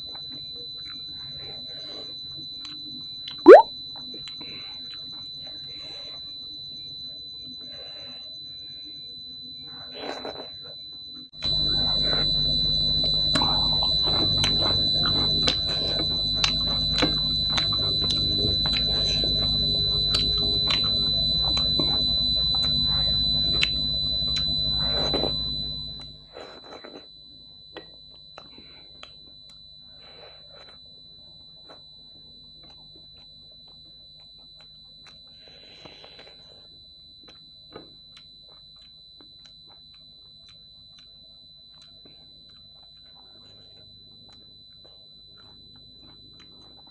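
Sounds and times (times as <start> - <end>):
high-pitched whine: 9.5 - 27.0
eating and chewing clicks: 13.0 - 25.3, 32.6 - 36.4, 37.2 - 46.9.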